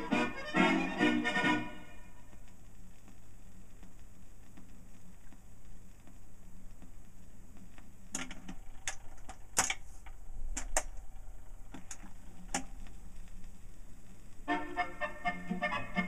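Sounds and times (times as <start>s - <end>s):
accordion music: 0.0s - 2.1s, 14.5s - 16.0s
low steady hum: 0.0s - 16.0s
record stylus clicks and crackle: 2.3s - 14.5s.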